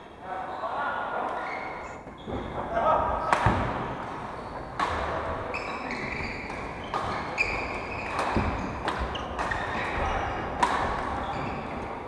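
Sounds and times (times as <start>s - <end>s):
shoes squeaking on wooden floor: 1.4s - 3.3s, 5.5s - 12.0s
rackets striking shuttlecock: 3.2s - 4.0s, 4.6s - 11.8s.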